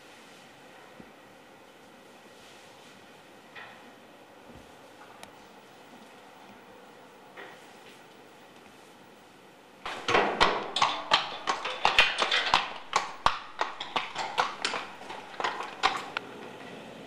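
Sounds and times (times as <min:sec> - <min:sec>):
horse hooves on hard floor: 0:09.8 - 0:16.7.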